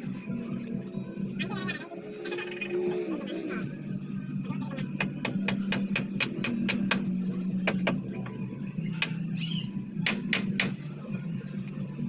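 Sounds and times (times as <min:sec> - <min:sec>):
hammer driving nails into wood: 0:05.0 - 0:07.0, 0:10.0 - 0:10.8.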